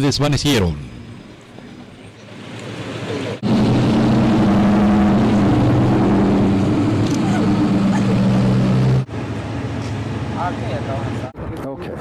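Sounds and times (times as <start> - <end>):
faint street noise: 0.0 - 3.4
loud steady engine hum: 1.0 - 11.6.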